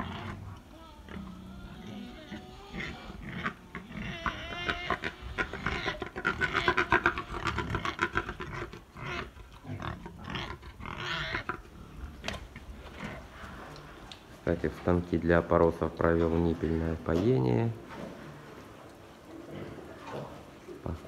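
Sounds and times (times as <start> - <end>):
pigs squealing: 0.0 - 12.4
pigs grunting: 0.0 - 21.0.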